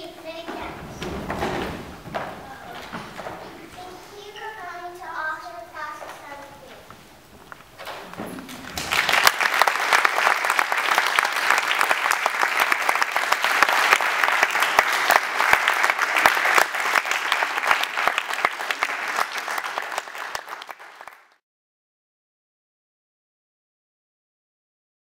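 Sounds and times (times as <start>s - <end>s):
audience applauding: 8.1s - 21.4s.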